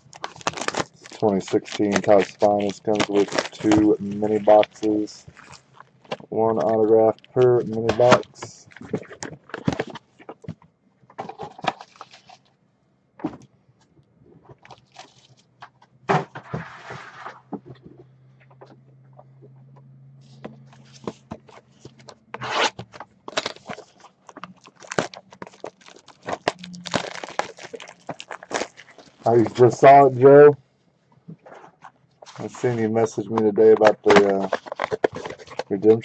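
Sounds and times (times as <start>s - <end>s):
shrink wrap crackling: 0.0s - 10.0s, 20.7s - 30.1s, 33.7s - 36.0s
cardboard scrapes and clicks: 20.3s - 26.6s.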